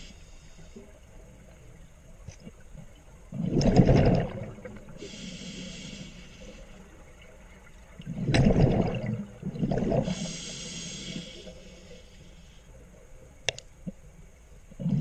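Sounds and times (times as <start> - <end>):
regulator inhale hiss: 0.0 - 1.0, 5.0 - 6.8, 10.0 - 12.8
exhaled bubbles rumbling: 2.5 - 5.0, 6.8 - 10.3, 14.7 - 15.0.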